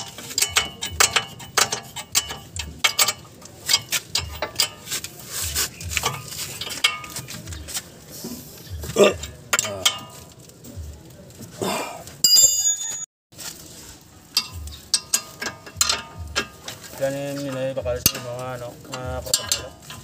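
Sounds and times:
wrench clicking on bolts: 0.0s - 5.1s, 14.4s - 16.8s
short metallic ring: 12.2s - 13.1s.

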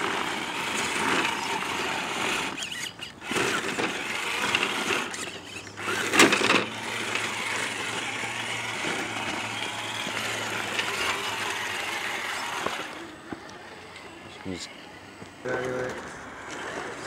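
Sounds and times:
electric toy truck motor whining: 0.0s - 14.2s, 16.0s - 17.0s.

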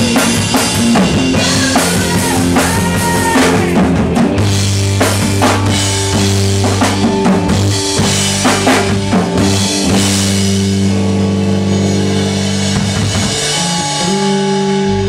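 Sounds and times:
drum hits: 0.0s - 10.9s
rock band playing live: 0.0s - 15.0s.

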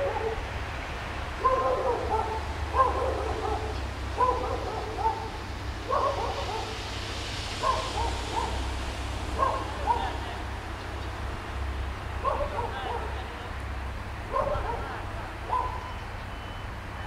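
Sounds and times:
dog barking: 0.0s - 0.4s, 1.4s - 6.8s, 7.6s - 8.6s, 9.4s - 10.4s, 12.2s - 13.4s, 14.3s - 16.0s
low steady rumble: 0.0s - 16.2s.

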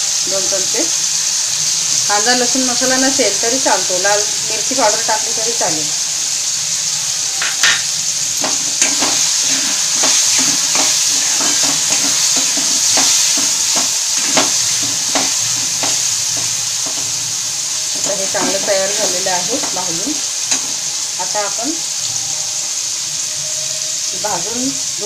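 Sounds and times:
vegetables sizzling in oil: 0.0s - 25.0s
metal spatula scraping pan: 7.4s - 19.9s.

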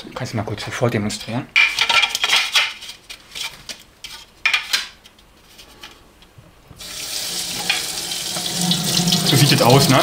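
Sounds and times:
tap water running: 6.8s - 10.0s.

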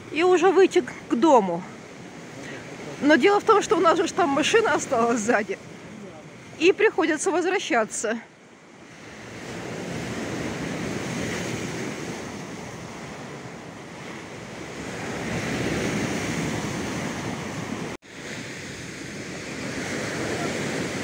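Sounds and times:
surf breaking on shore: 0.0s - 8.1s, 8.8s - 21.0s.

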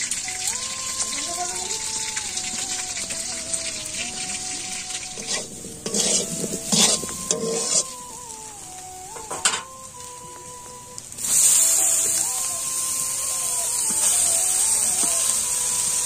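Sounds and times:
potatoes sizzling in hot oil: 0.0s - 16.0s
metal spatula scraping wok: 3.6s - 8.0s
loud hiss of spinach in oil: 11.2s - 16.0s.

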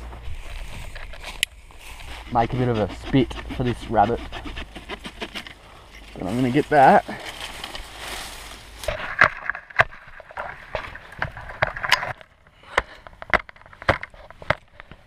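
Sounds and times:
dry twigs and leaves rustling: 0.0s - 14.9s
branches snapping and cracking: 4.8s - 12.3s.

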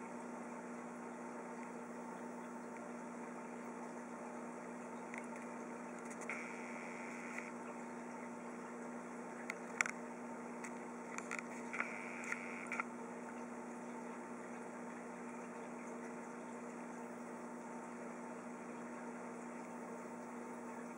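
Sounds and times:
aquarium equipment humming: 0.0s - 20.9s
faint clicks: 9.4s - 10.0s, 10.6s - 12.9s.

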